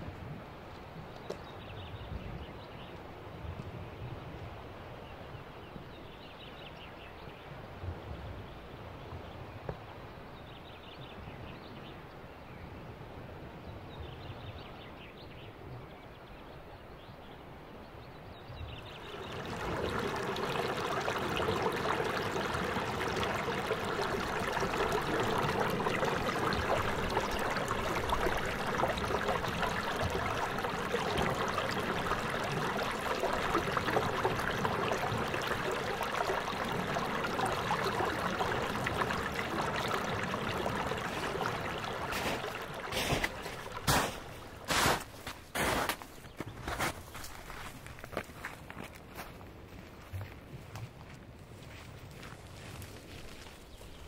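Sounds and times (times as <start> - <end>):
water trickling over rocks: 18.8 - 49.3, 52.0 - 54.0.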